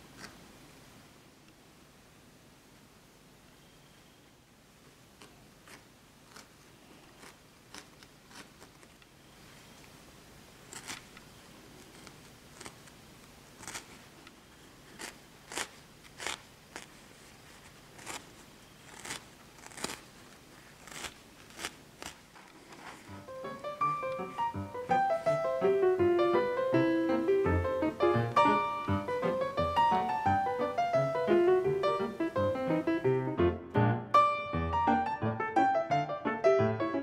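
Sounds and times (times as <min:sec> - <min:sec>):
felting needle poking wool: 0:05.2 - 0:08.9, 0:10.7 - 0:14.1, 0:14.9 - 0:24.4.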